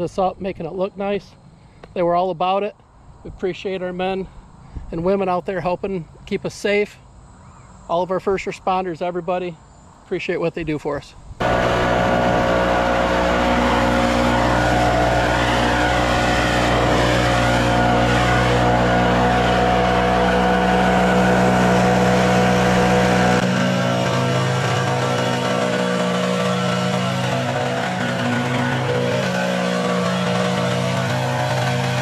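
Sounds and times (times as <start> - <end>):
leaf blower engine drone: 11.4 - 32.0.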